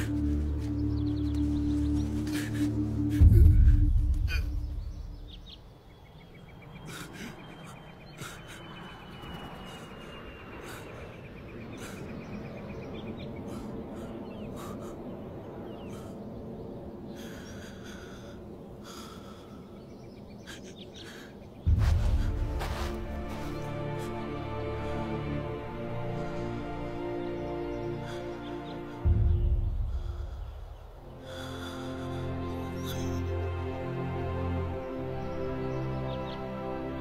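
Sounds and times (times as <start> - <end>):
deep low hit: 3.2 - 5.2
man breathing and gasping: 6.9 - 9.0, 13.4 - 16.3, 17.1 - 24.2, 28.0 - 33.1.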